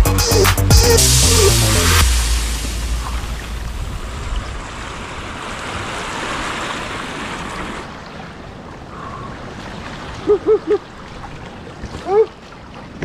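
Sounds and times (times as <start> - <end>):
sea water washing over rocks: 2.0 - 8.9.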